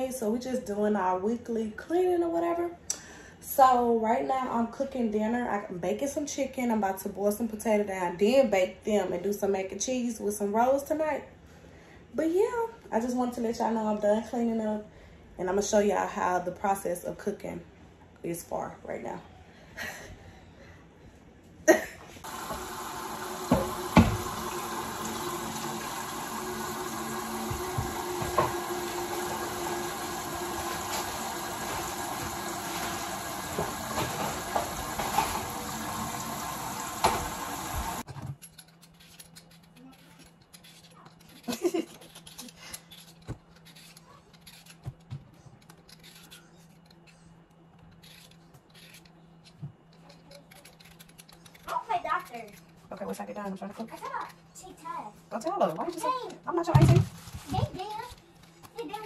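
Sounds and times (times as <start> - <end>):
peeler scraping potato: 22.2 - 35.5, 38.4 - 54.5, 55.3 - 56.6.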